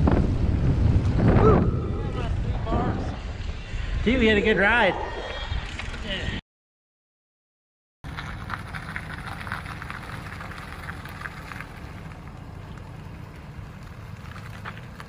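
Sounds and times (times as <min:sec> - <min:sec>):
truck driving on road: 0:00.0 - 0:02.6, 0:08.0 - 0:15.0.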